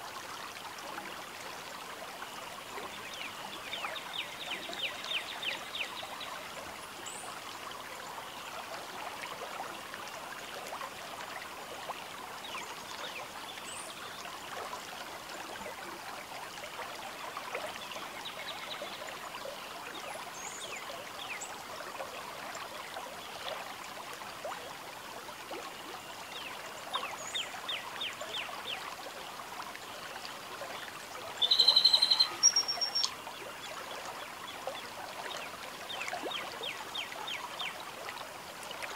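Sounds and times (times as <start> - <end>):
birds chirping and trilling: 31.4 - 33.1
loud close bird call: 31.5 - 33.1.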